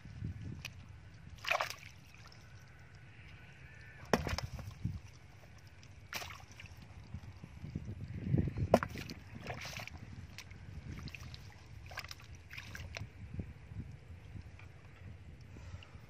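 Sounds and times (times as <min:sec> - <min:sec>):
hands splashing in muddy water: 0:01.4 - 0:02.4, 0:04.1 - 0:04.8, 0:06.0 - 0:06.8, 0:08.7 - 0:13.1
splashy knocks on plastic bucket: 0:04.1 - 0:04.6, 0:08.7 - 0:09.1.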